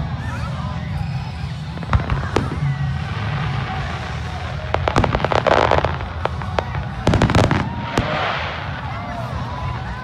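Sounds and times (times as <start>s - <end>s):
fireworks bangs and crackling: 0.0s - 10.0s.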